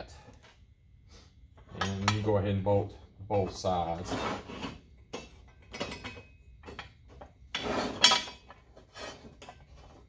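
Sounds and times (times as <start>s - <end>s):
steel bolts and plates clinking: 1.7s - 2.4s, 5.1s - 9.8s
metal clank: 5.1s - 8.7s.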